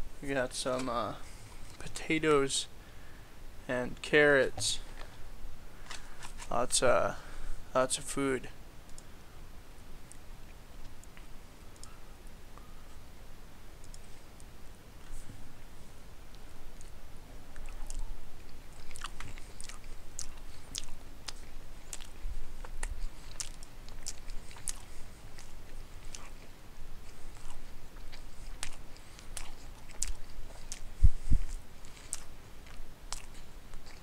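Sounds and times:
person chewing food: 16.4s - 34.0s.

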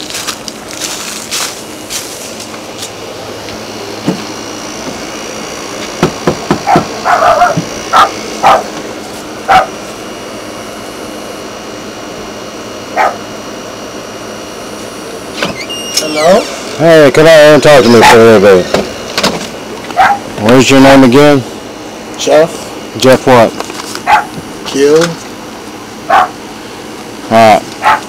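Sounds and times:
knocking on wooden door: 6.0s - 7.7s
dog barking: 6.6s - 8.8s, 9.5s - 9.8s, 12.9s - 13.3s, 20.0s - 20.3s, 24.0s - 24.4s, 26.1s - 26.4s, 27.8s - 28.0s.

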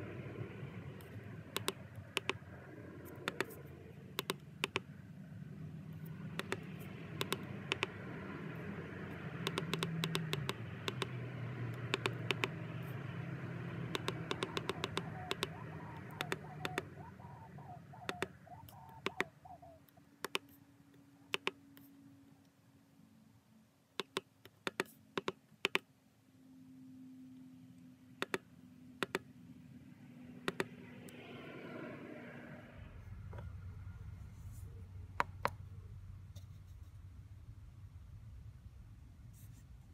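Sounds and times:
low background hum: 0.0s - 39.9s
keypad button clicks: 13.9s - 15.5s, 16.2s - 16.8s, 21.3s - 21.6s, 24.0s - 25.8s.

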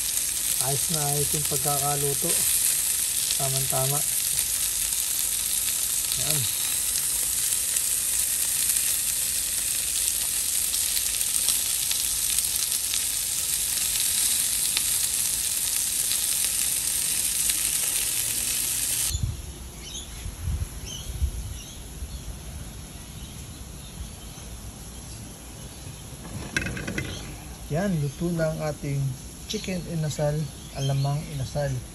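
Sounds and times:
chicken sizzling on grill: 0.0s - 19.1s.

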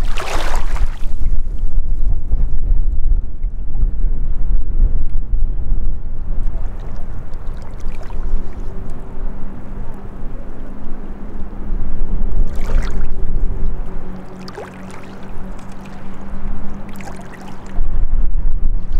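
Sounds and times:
waves lapping on rocky shore: 0.0s - 1.2s, 14.1s - 17.8s
water splash: 0.0s - 1.3s, 6.5s - 8.7s, 12.5s - 13.2s, 14.2s - 17.8s
wind on microphone: 0.0s - 18.9s
distant motorboat engine drone: 3.2s - 18.9s.

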